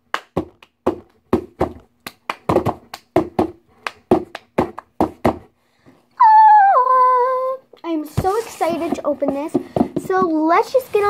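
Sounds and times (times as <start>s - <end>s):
person clapping hands: 0.0s - 5.4s.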